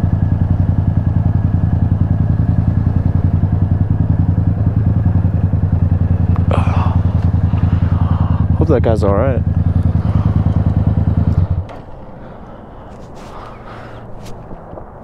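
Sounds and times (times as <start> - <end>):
motorcycle engine at low revs: 0.0 - 15.0.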